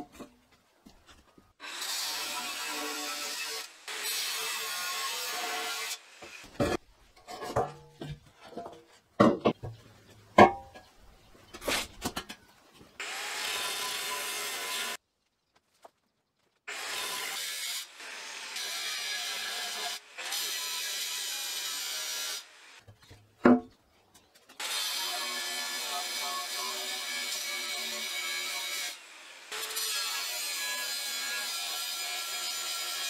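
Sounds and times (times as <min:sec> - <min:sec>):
angle grinder cutting steel: 0:01.6 - 0:06.6, 0:13.0 - 0:15.0, 0:16.7 - 0:22.8, 0:24.6 - 0:33.0.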